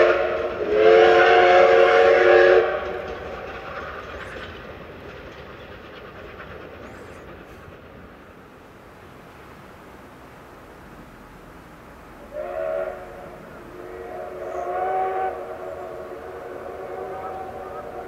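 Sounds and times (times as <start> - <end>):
steam locomotive whistle blast: 0.0 - 3.5, 12.2 - 18.0
steam train running: 0.0 - 18.0.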